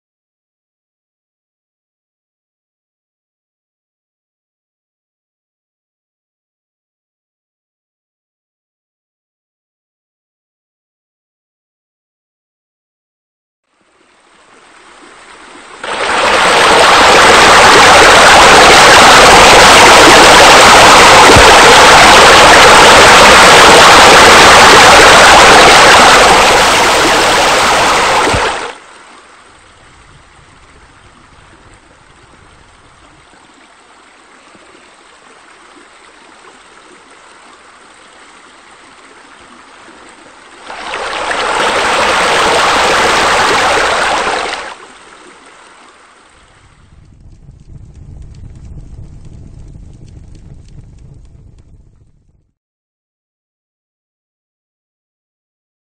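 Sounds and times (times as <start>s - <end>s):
rushing splashing water: 13.8s - 46.8s.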